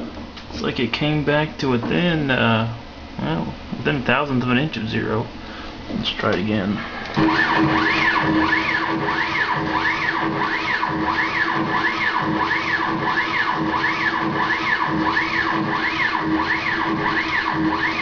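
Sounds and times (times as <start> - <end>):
steady hum: 0.0 - 18.0
stepper motor whine: 6.8 - 18.0.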